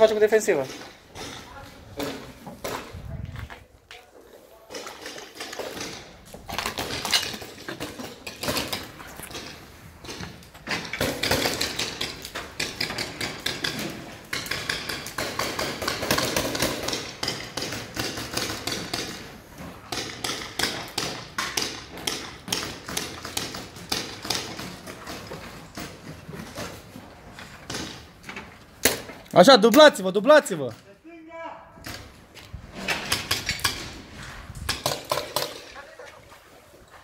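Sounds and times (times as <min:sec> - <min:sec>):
footsteps crunching over rubble: 0:00.5 - 0:05.0.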